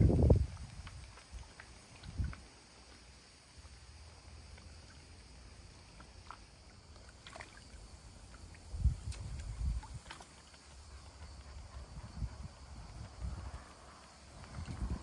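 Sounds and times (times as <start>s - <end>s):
dog lapping water: 0.0s - 13.6s
small ticks: 0.4s - 7.5s.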